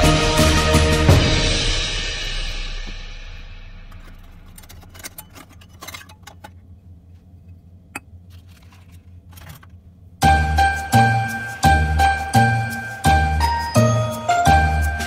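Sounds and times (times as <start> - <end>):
background music: 0.0 - 4.7, 10.2 - 15.0.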